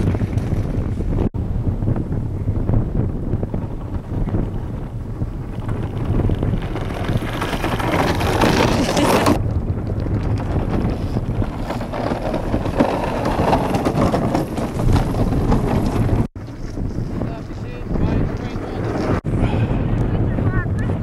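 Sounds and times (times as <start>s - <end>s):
iceboat runners rumbling on ice: 0.0s - 1.3s, 2.7s - 21.0s
wind rushing over microphone: 0.0s - 21.0s.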